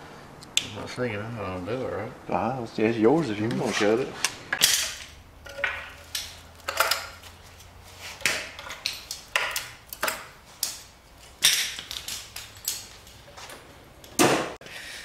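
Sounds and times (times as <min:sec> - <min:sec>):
metal tools clinking on engine: 0:04.6 - 0:07.8, 0:08.4 - 0:13.8.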